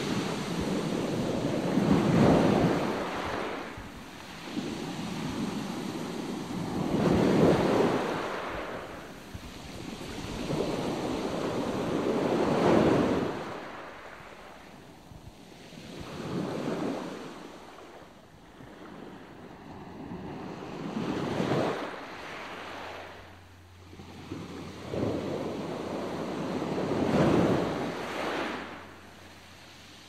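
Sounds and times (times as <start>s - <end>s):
rushing wind: 0.0s - 17.6s
sea noise: 0.0s - 30.0s.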